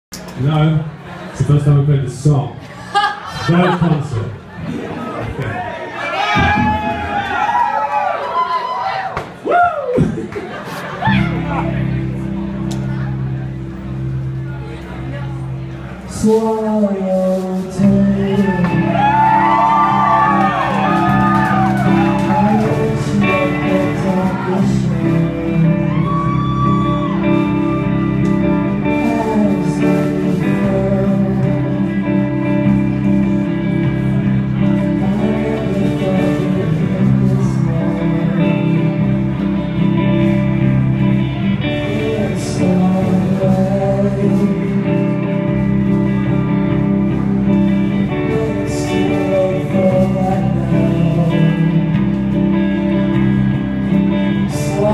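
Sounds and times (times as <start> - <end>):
drums: 2.7 - 54.9
bass guitar: 3.9 - 8.5, 9.2 - 54.9
electric guitars: 4.0 - 54.9
person singing: 16.0 - 54.9.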